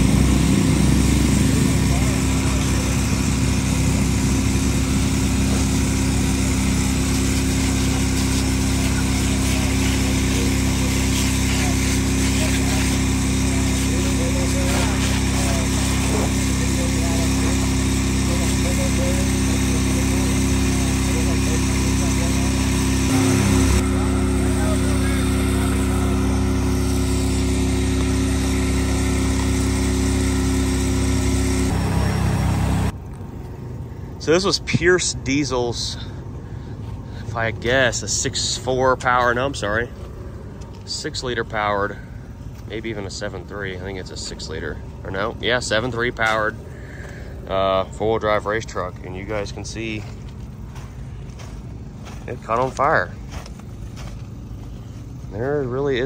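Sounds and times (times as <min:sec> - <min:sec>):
engine running steadily: 0:00.0 - 0:56.0.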